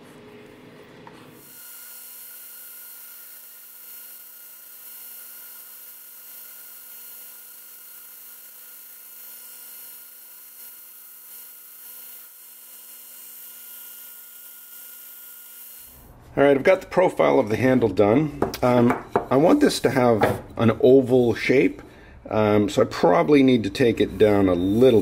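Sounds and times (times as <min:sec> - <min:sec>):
belt grinder sanding hiss: 0:01.4 - 0:16.0.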